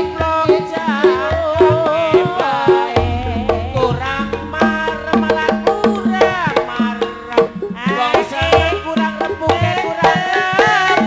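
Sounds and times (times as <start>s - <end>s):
drumming: 2.9s - 9.7s
wavering melody line: 3.0s - 8.7s
struck tuned notes: 3.0s - 9.0s.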